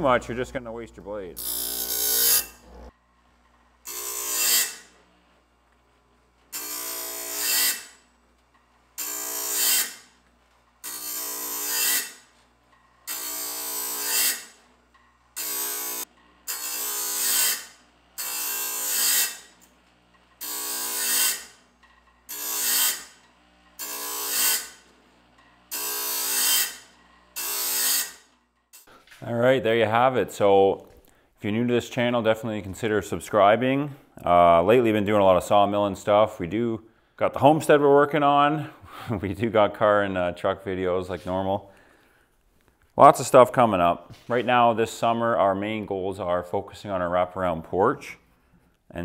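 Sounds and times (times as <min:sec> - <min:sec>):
grinder grinding saw teeth: 0:01.3 - 0:03.0, 0:15.4 - 0:28.9.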